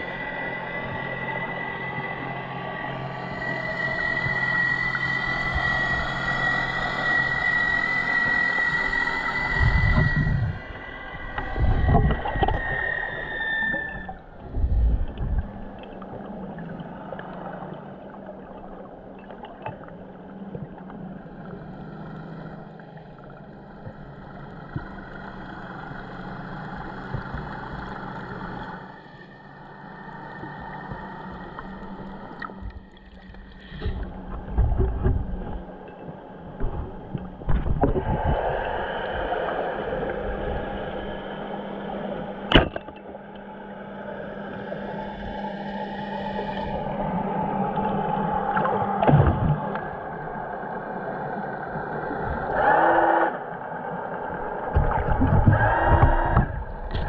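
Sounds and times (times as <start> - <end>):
steady low hum: 0.0 - 57.0
water moving underwater: 0.0 - 57.0.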